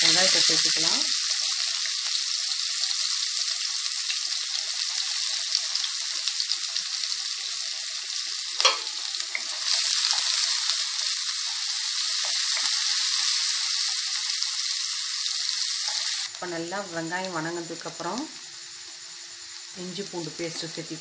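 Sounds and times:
onions sizzling in hot oil: 0:00.0 - 0:21.0.

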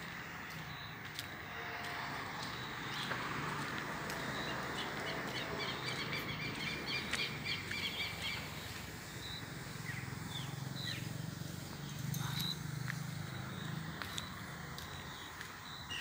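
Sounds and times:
birds chirping: 0:00.0 - 0:16.0
low outdoor hum: 0:00.0 - 0:16.0.

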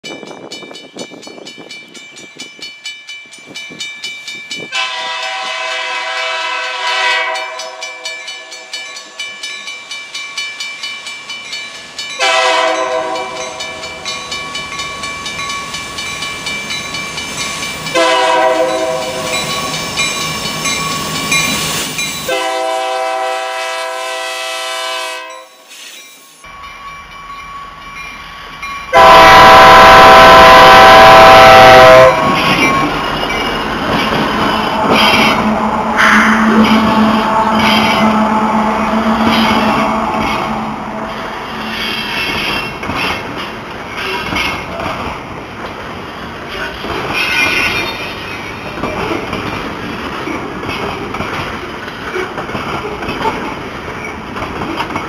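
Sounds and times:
locomotive air horn blasts: 0:04.7 - 0:07.8, 0:12.2 - 0:13.4, 0:18.0 - 0:19.4, 0:22.3 - 0:25.5, 0:28.9 - 0:32.4, 0:34.4 - 0:41.8
wheels clicking on rails: 0:32.1 - 0:40.6, 0:41.6 - 0:55.0.

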